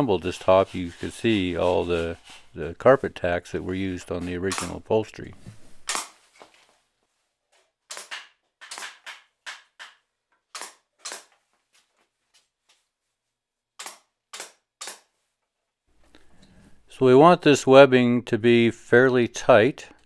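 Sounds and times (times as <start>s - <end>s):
pneumatic stapler firing: 7.9s - 9.1s.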